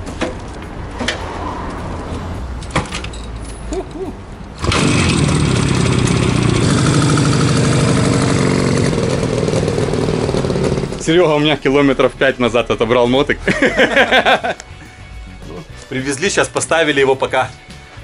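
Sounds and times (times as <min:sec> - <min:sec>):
motorcycle engine starting and running: 0:04.5 - 0:11.4.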